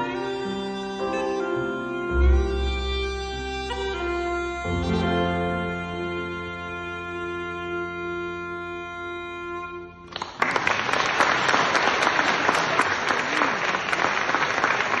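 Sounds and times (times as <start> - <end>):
wind instrument held note: 0.0 - 10.1
audience applause: 10.1 - 15.0.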